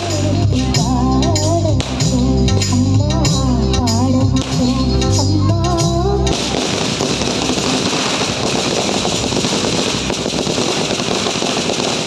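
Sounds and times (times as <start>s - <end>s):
firecrackers crackling: 0.0s - 2.9s, 6.3s - 12.0s.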